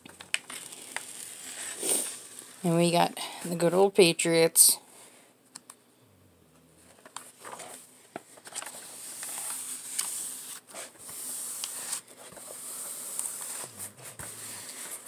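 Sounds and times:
plastic film rustling and crinkling: 0:00.0 - 0:02.8, 0:07.0 - 0:15.0.

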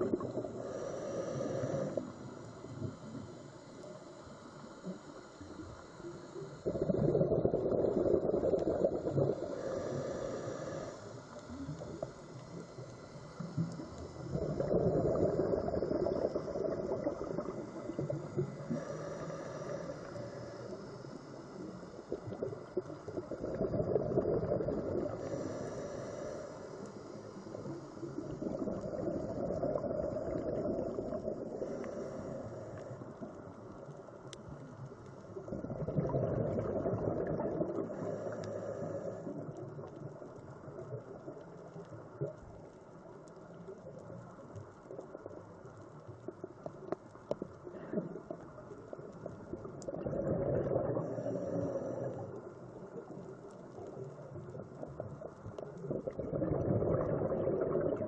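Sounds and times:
exhaled bubbles gurgling underwater: 0:00.0 - 0:04.0, 0:04.7 - 0:58.0
regulator inhalation hiss: 0:00.2 - 0:06.7, 0:09.2 - 0:14.3, 0:15.1 - 0:22.2, 0:24.8 - 0:29.0.

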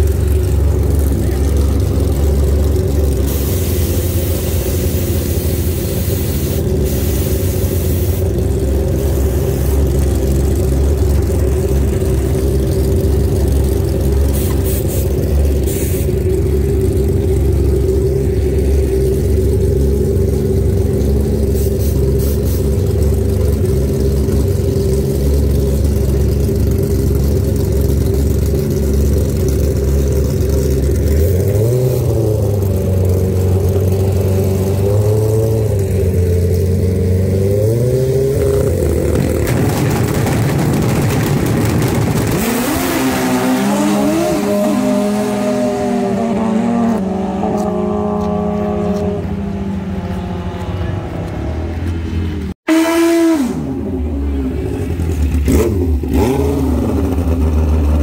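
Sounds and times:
engine humming steadily: 0:00.0 - 0:58.0
brief hissing: 0:14.3 - 0:16.2, 0:21.6 - 0:22.8.

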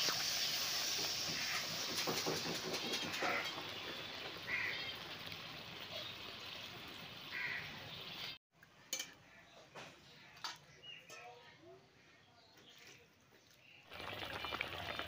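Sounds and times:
curry bubbling in a pan: 0:13.9 - 0:15.0.

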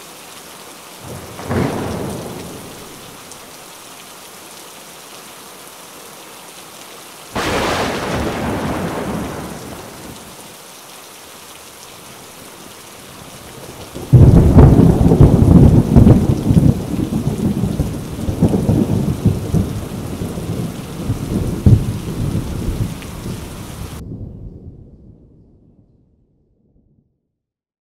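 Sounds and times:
steady rain falling: 0:00.0 - 0:24.2
thunder rumbling: 0:01.0 - 0:03.3, 0:07.4 - 0:10.4, 0:13.0 - 0:26.0.

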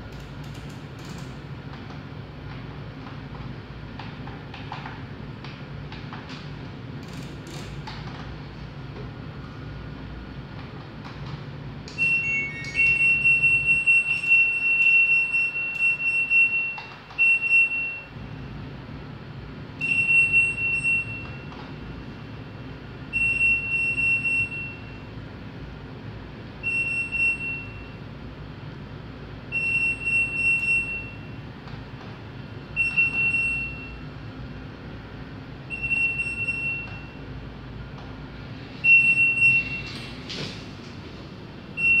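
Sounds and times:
washing machine beeping: 0:11.7 - 0:18.8, 0:19.5 - 0:25.4, 0:26.4 - 0:28.4, 0:29.4 - 0:40.7, 0:41.4 - 0:42.0.

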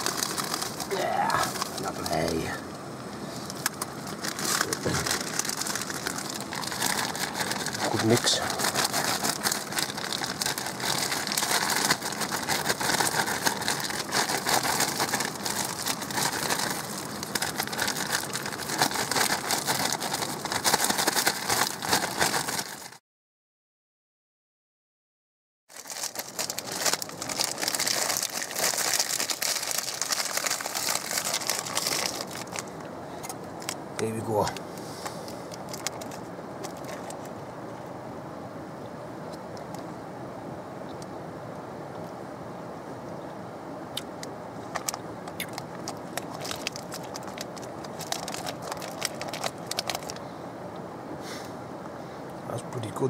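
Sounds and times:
plastic packaging crinkling: 0:00.0 - 0:02.6, 0:03.4 - 0:23.0, 0:25.7 - 0:37.4, 0:44.0 - 0:50.2.

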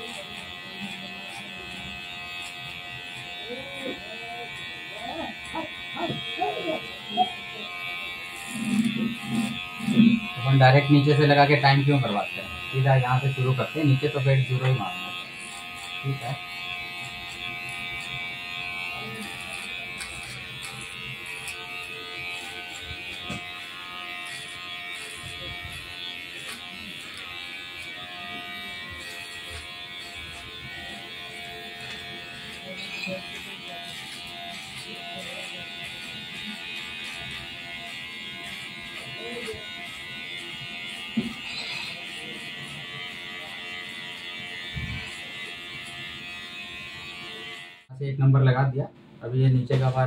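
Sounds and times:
electric hair clipper running: 0:00.0 - 0:47.9.

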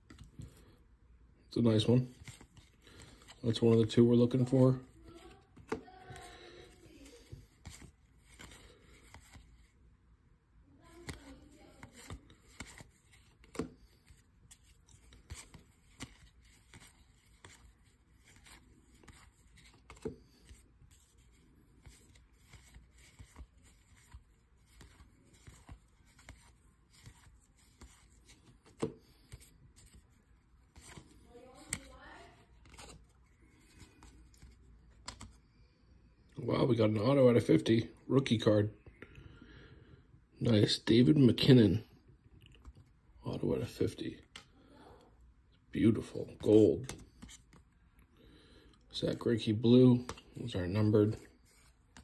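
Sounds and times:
trading cards flipping: 0:00.0 - 0:00.8, 0:01.8 - 0:09.7, 0:10.8 - 0:35.6, 0:46.3 - 0:47.9, 0:50.0 - 0:52.0.

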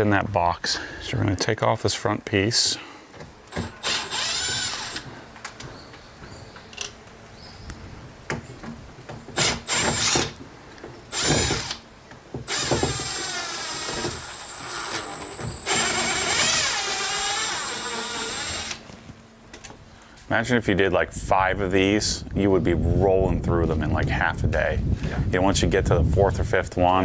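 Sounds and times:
power drill driving screws: 0:03.5 - 0:05.1, 0:09.4 - 0:10.4, 0:11.1 - 0:11.8, 0:12.5 - 0:18.8.

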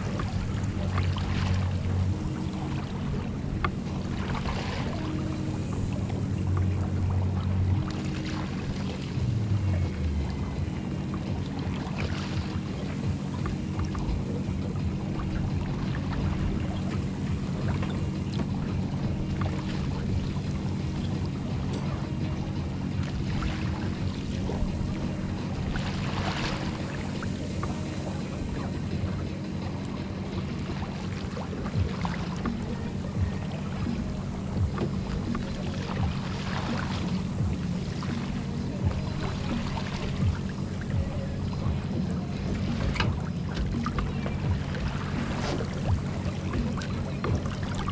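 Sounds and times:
water splashing along boat hull: 0:00.0 - 0:47.9
wind rumble on microphone: 0:00.0 - 0:47.9.

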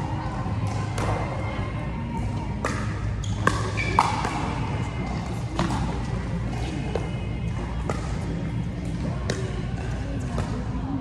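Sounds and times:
paddles hitting plastic ball: 0:02.6 - 0:04.7.

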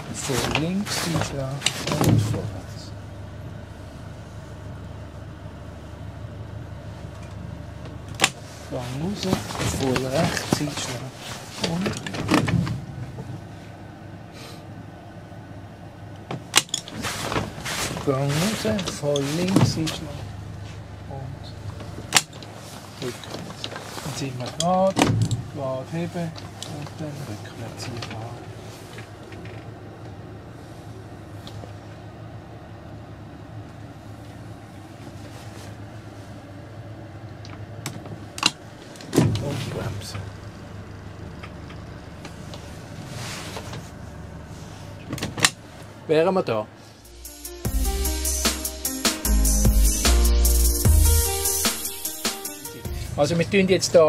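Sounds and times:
motorboat engine idling: 0:02.3 - 0:10.2, 0:19.0 - 0:22.4, 0:39.7 - 0:43.0.

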